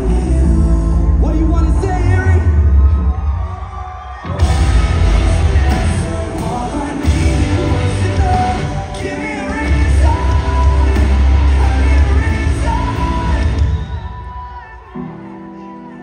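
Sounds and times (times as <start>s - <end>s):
sung and yelled vocals: 0.0s - 16.0s
live rock band playing: 4.3s - 16.0s.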